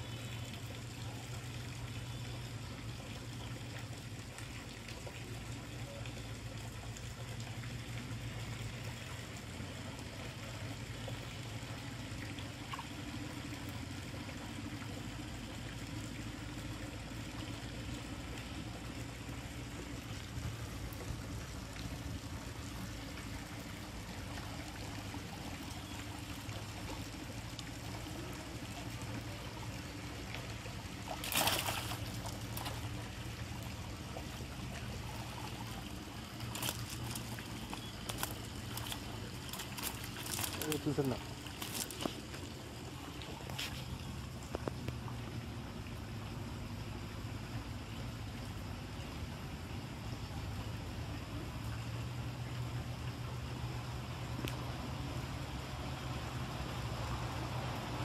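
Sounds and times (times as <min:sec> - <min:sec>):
water trickling and splashing: 0:00.0 - 0:58.0
loud splash: 0:31.1 - 0:32.9.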